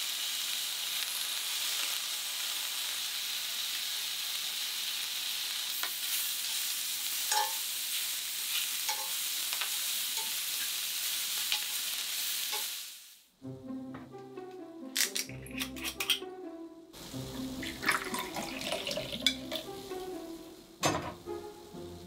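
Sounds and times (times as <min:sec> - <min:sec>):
sausages sizzling in a skillet: 0:00.0 - 0:13.4, 0:17.0 - 0:22.0
metal tongs clinking against pan: 0:07.3 - 0:07.6, 0:08.9 - 0:09.2, 0:15.0 - 0:16.2
music: 0:13.4 - 0:22.0.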